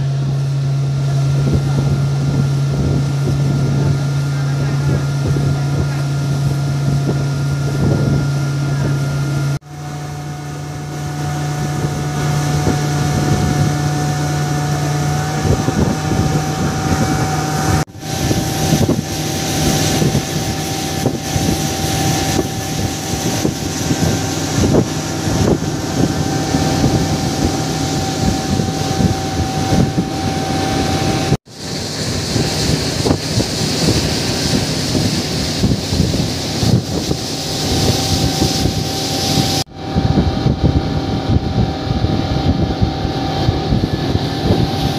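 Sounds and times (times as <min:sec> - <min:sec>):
boat engine running: 0:00.0 - 0:44.9
wind buffeting microphone: 0:00.0 - 0:44.9.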